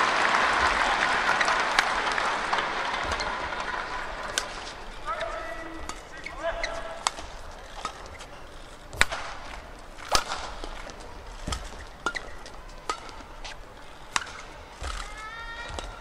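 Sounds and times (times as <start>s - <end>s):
racket striking shuttlecock: 0.6s - 16.0s
shoe squeaks on court floor: 5.2s - 7.0s, 11.5s - 12.5s.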